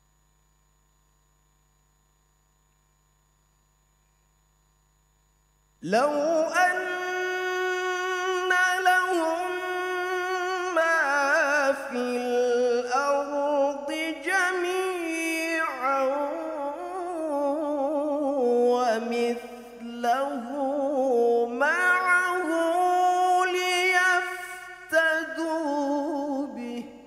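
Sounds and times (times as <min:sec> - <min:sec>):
man reciting melodically into microphone: 0:05.8 - 0:27.0.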